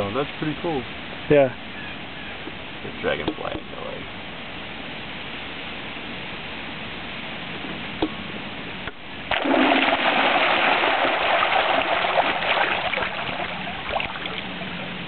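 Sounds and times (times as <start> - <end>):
water churning and splashing: 9.3 - 15.0.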